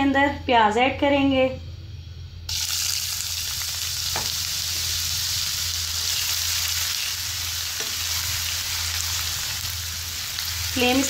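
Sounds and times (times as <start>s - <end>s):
onion sizzling in hot oil: 2.5s - 11.0s.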